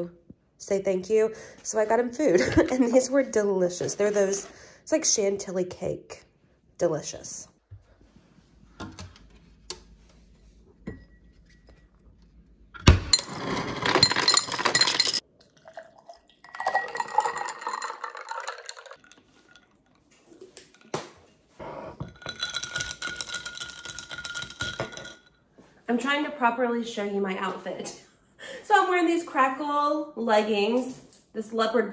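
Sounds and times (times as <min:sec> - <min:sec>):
ice cubes clattering into glass: 0:13.1 - 0:15.2, 0:16.4 - 0:19.7, 0:22.1 - 0:25.3
liquid pouring over ice: 0:14.1 - 0:20.0.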